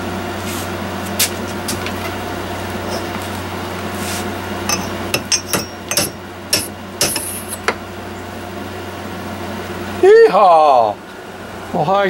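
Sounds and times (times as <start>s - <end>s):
steady low hum: 0.0s - 12.0s
metal tools clinking: 2.9s - 3.2s, 4.7s - 7.7s.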